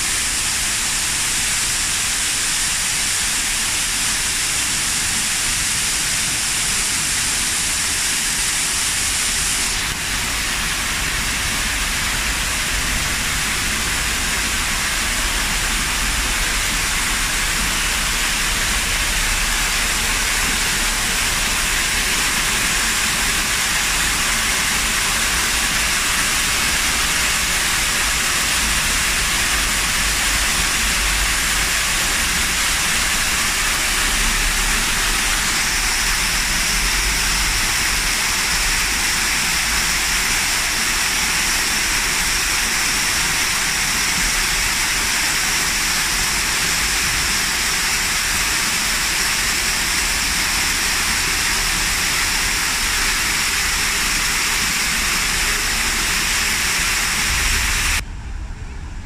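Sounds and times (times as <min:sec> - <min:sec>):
waterfall pouring over rocks: 0:00.0 - 0:58.0.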